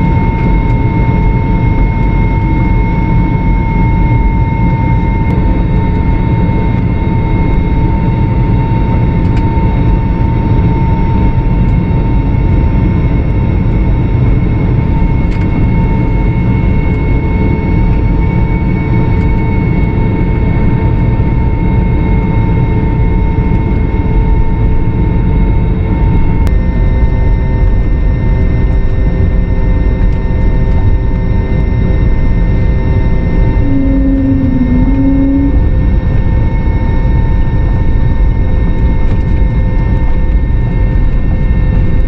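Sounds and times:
jet engines running: 0.0s - 42.0s.

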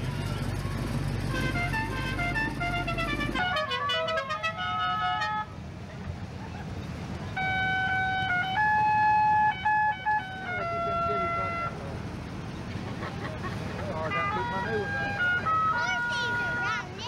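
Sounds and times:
low engine rumble: 0.0s - 17.0s
musical car horn tune: 1.2s - 5.6s, 7.4s - 11.8s, 14.0s - 16.8s.

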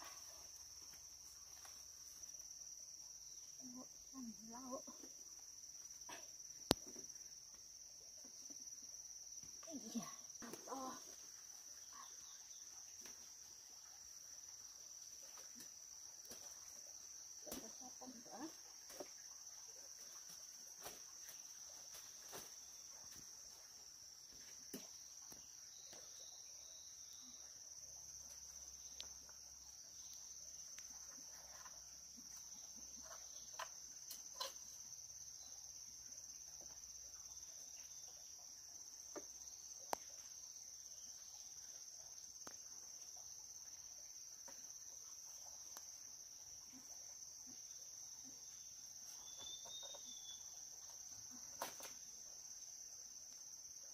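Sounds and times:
insect chorus drone: 0.0s - 53.9s
leaves rustling and clicking: 51.4s - 52.1s.

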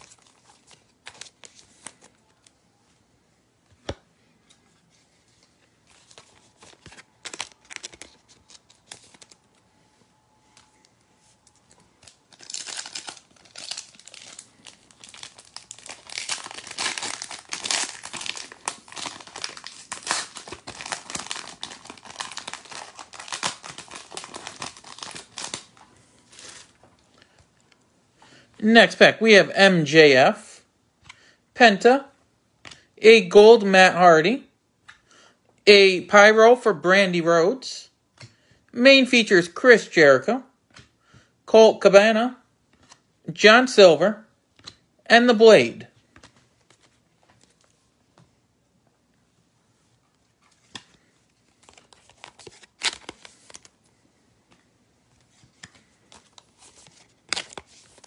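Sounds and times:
cards being handled: 0.0s - 2.5s, 3.7s - 9.6s, 42.7s - 43.0s, 44.6s - 44.8s, 46.0s - 48.3s, 50.4s - 53.7s, 54.5s - 58.0s
wrapper tearing and crinkling: 6.0s - 9.4s, 12.0s - 26.8s, 51.5s - 53.7s, 56.2s - 58.0s.

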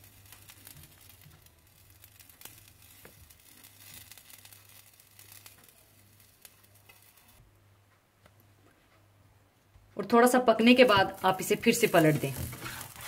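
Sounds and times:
frying sizzle with crackles: 0.0s - 7.4s, 10.6s - 13.0s.

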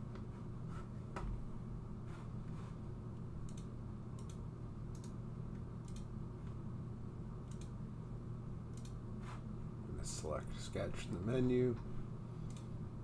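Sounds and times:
steady low hum: 0.0s - 13.0s
computer mouse clicking: 3.4s - 5.2s, 5.8s - 6.1s, 7.4s - 7.8s, 8.7s - 9.0s, 12.5s - 12.7s.

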